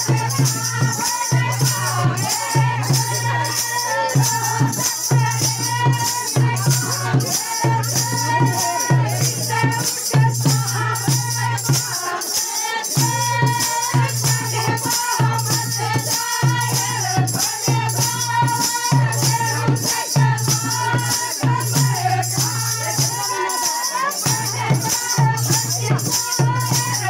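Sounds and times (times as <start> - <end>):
people singing folk song: 0.0 - 27.0
rattling shaker percussion: 0.0 - 27.0.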